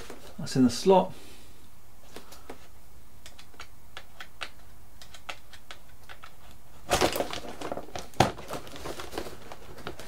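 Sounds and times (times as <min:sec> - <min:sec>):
hands clicking and tapping foam wing: 0:03.2 - 0:06.6.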